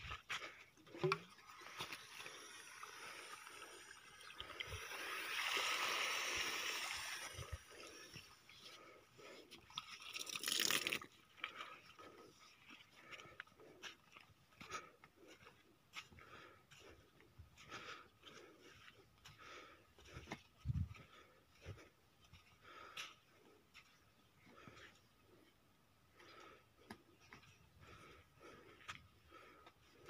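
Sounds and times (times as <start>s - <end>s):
water pouring from pipe: 1.0s - 8.3s, 9.7s - 11.1s
water splashing into mud: 10.0s - 11.1s.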